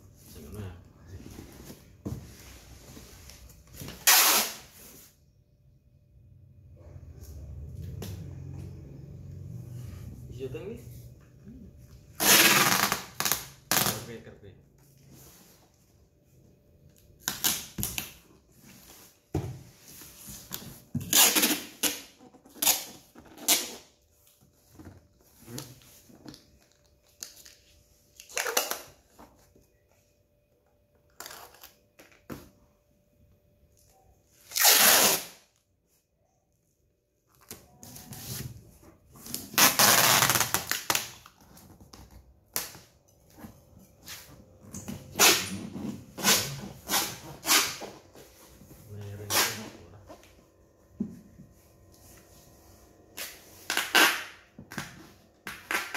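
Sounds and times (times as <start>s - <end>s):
packing tape ripping off roll: 3.9s - 4.8s, 12.2s - 14.1s, 17.2s - 18.2s, 21.0s - 23.9s, 26.8s - 29.1s, 34.4s - 35.6s, 39.3s - 41.6s, 45.1s - 48.0s, 49.2s - 49.8s, 53.1s - 55.9s.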